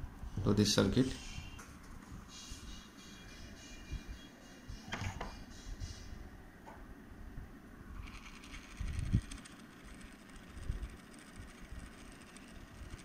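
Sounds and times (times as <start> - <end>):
fast high motor whir: 8.0 - 13.0.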